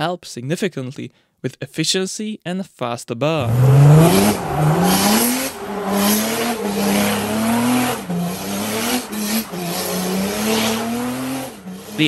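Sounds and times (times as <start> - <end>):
diesel engine revving: 3.4 - 12.0
tyres spinning on gravel: 3.9 - 12.0.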